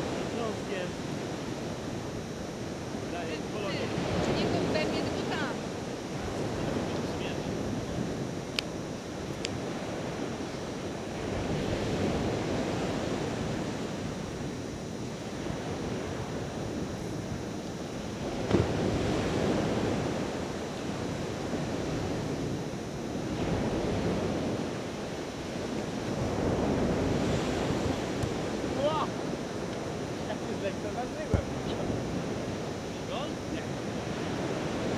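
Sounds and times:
surf washing onto beach: 0.0 - 34.9
wind buffeting microphone: 0.0 - 34.9.

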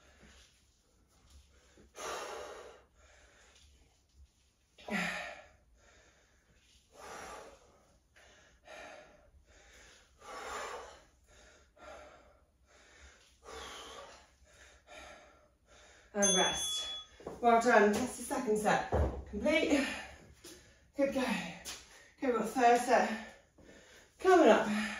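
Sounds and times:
person breathing hard: 1.4 - 3.7, 4.8 - 16.2, 23.4 - 24.9.

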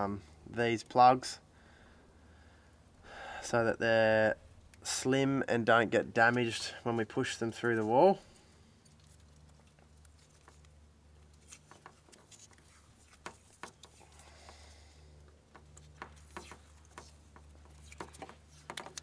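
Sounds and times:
tape crackling while unrolled: 6.3 - 19.0.

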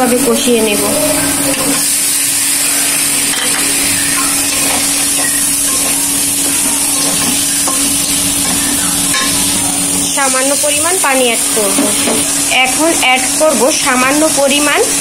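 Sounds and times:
fish sizzling in hot oil: 0.0 - 15.0
spatula scraping pan: 1.4 - 10.0.

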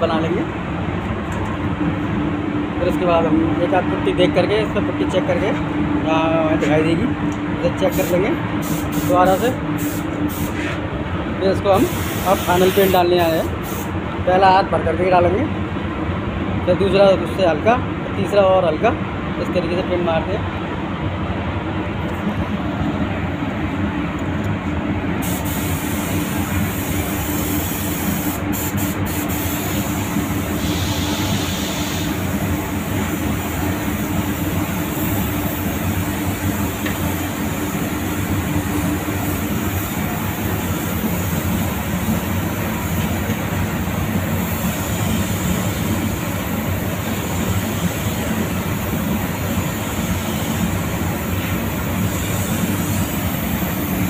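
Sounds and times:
steady machine rumble: 0.0 - 54.0
spray gun hissing: 7.9 - 10.7, 11.8 - 13.9, 25.2 - 43.2, 44.4 - 54.0.

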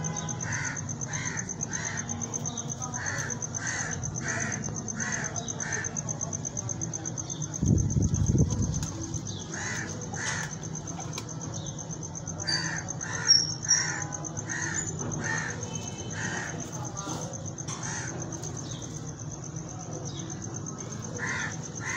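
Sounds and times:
crows cawing: 0.2 - 6.0, 9.4 - 11.1, 12.4 - 19.0, 20.9 - 21.9.

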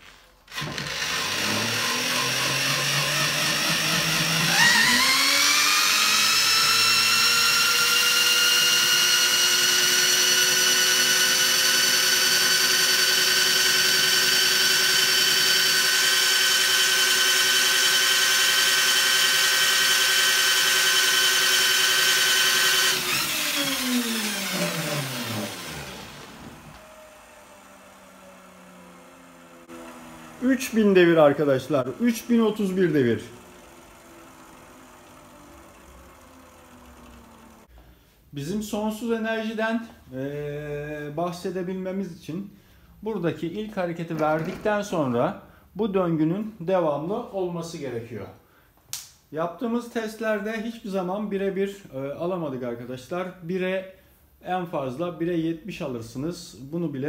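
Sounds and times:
electric drill spinning: 0.4 - 37.7
motor whine: 0.7 - 37.7.

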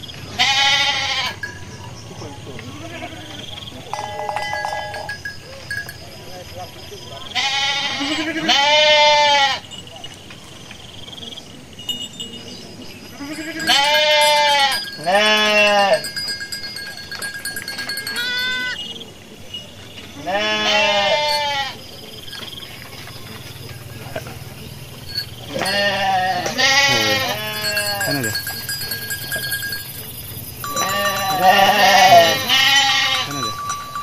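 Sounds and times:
sheep bleating: 0.3 - 1.4, 2.6 - 3.4, 7.2 - 9.6, 13.2 - 16.1, 18.0 - 18.8, 20.2 - 21.8, 25.5 - 28.5, 30.7 - 33.8
lamb bleating: 0.4 - 1.4, 7.3 - 9.6, 13.2 - 16.0, 18.1 - 18.8, 20.2 - 21.8, 25.5 - 28.3, 30.7 - 33.6.

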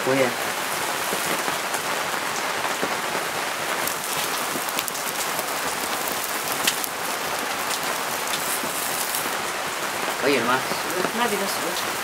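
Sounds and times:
charcoal crackles: 0.0 - 12.0
food sizzling on a grill: 0.0 - 12.0.

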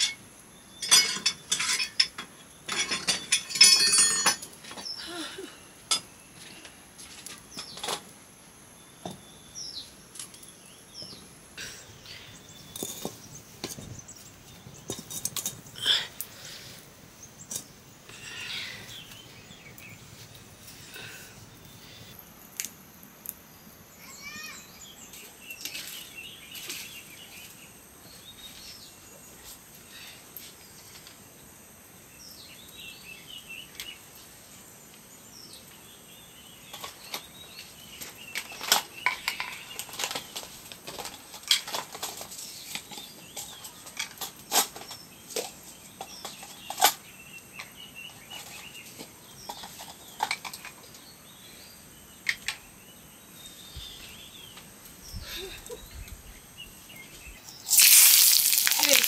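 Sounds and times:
birds chirping: 0.0 - 22.4, 44.8 - 59.0
insect drone: 14.2 - 25.1, 57.6 - 59.0.

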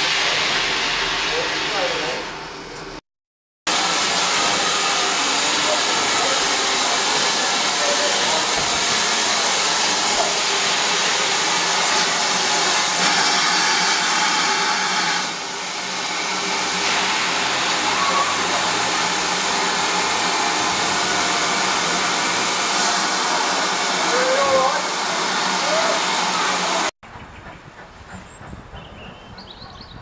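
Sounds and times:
hiss of escaping steam: 3.8 - 26.8.

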